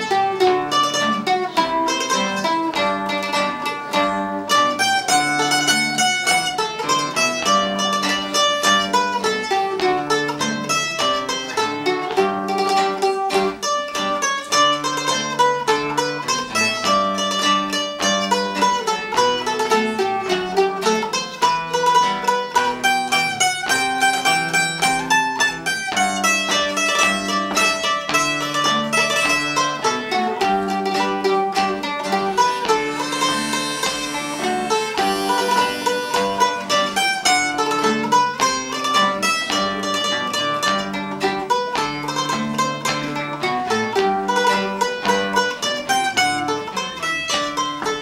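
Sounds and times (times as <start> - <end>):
mandolin picking melody: 0.0 - 48.0
strummed small guitar: 0.0 - 48.0
harmonica held chords: 30.8 - 37.9.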